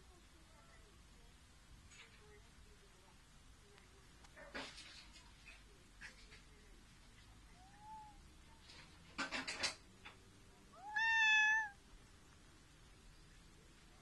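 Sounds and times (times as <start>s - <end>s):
cat meowing: 7.6s - 8.2s, 10.7s - 11.8s
faint short cat mew: 10.8s - 11.8s.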